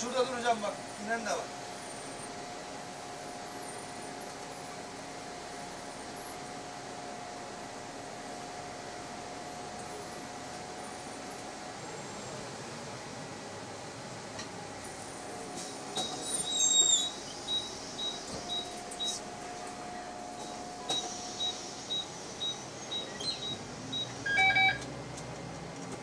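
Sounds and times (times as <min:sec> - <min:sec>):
card reader beeps: 0:17.5 - 0:19.2, 0:20.9 - 0:24.9.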